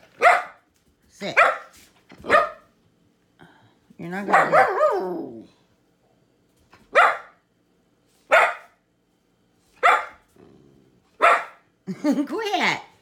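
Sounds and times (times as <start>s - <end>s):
puppy barking: 0.1s - 0.6s, 1.4s - 2.7s, 4.3s - 5.4s, 6.9s - 7.4s, 8.3s - 8.8s, 9.8s - 10.2s, 11.2s - 11.6s.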